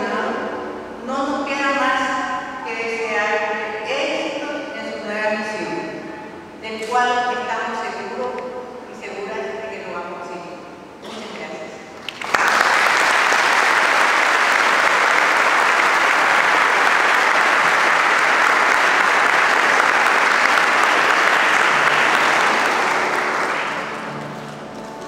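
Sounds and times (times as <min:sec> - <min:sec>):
congregation applauding: 0:12.0 - 0:24.8.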